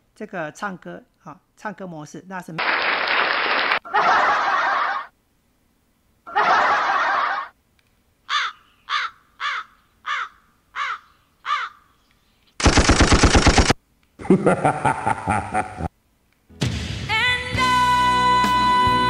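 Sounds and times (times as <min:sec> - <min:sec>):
canned applause: 0:02.6 - 0:03.8
machine-gun fire: 0:02.6 - 0:03.8, 0:12.6 - 0:13.8
crow caws: 0:08.3 - 0:11.9.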